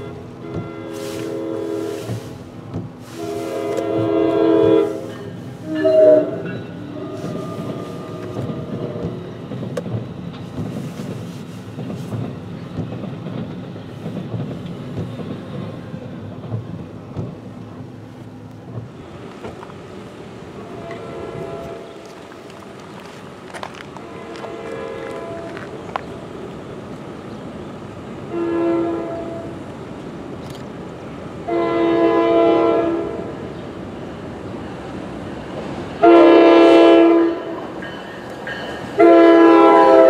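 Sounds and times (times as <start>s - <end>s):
train horn blasts: 0.0s - 2.4s, 3.0s - 9.1s, 20.6s - 22.2s, 24.0s - 25.8s, 28.3s - 29.6s, 31.4s - 33.4s, 36.0s - 37.7s, 39.0s - 40.0s
train rumbling past: 0.0s - 40.0s.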